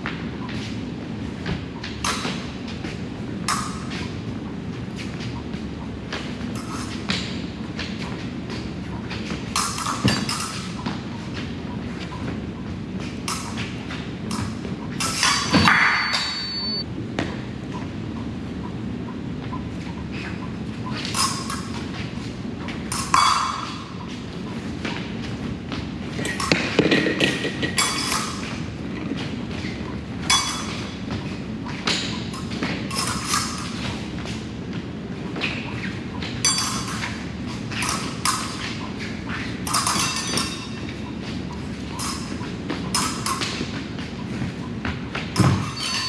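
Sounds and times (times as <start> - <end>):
fencing blades clinking: 1.8 - 4.2, 6.2 - 16.8, 20.9 - 25.4, 26.2 - 34.1, 35.4 - 46.0.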